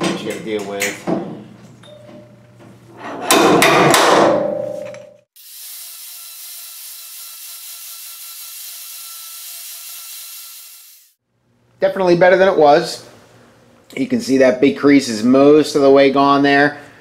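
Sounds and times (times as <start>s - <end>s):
angle grinder grinding metal: 5.4s - 11.2s.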